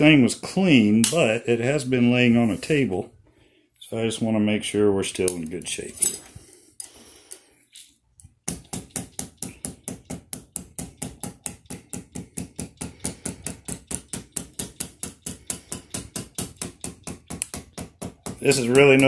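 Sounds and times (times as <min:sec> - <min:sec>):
hammer tapping on metal rod: 0:08.5 - 0:19.0.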